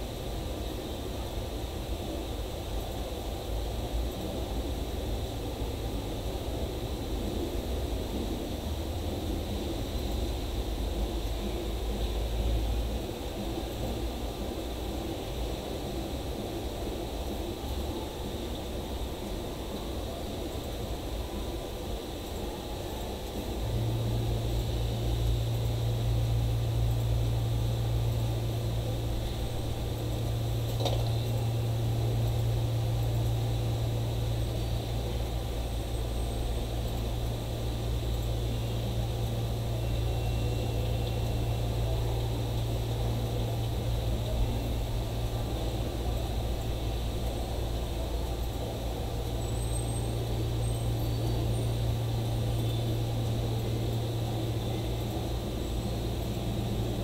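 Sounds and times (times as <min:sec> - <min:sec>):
low droning hum: 0:00.0 - 0:57.0.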